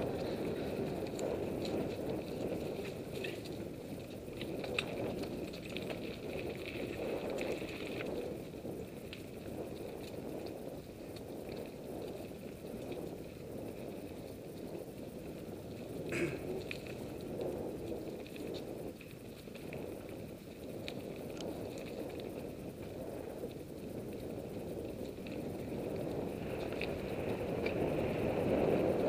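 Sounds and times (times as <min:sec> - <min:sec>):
bike clicks and rattles: 0:00.0 - 0:29.0
bike tyres rumbling over dirt: 0:00.0 - 0:29.0.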